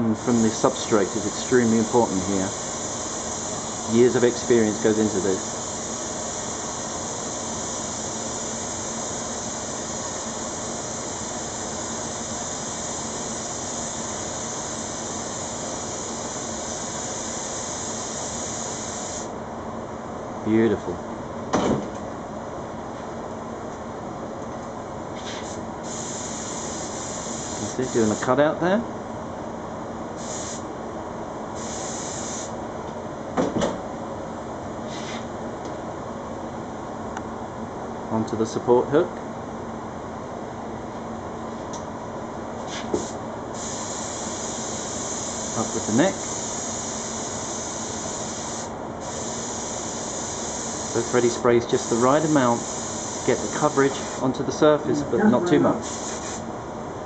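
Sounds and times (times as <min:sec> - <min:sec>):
spray gun hissing: 0:00.2 - 0:19.3, 0:25.4 - 0:28.2, 0:30.2 - 0:30.6, 0:31.6 - 0:32.5, 0:42.9 - 0:54.3, 0:55.7 - 0:56.4.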